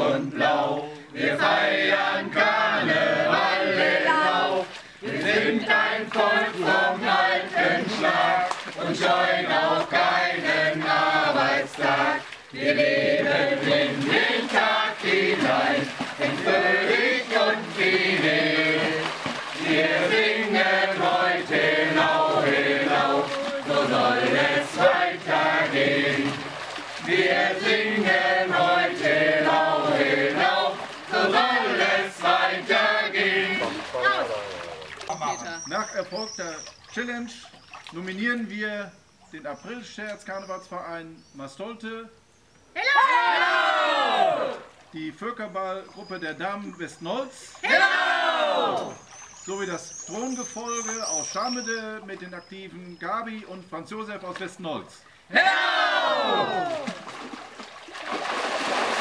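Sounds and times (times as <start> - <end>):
group of voices singing: 0.0 - 34.5, 47.6 - 49.0, 55.3 - 56.9.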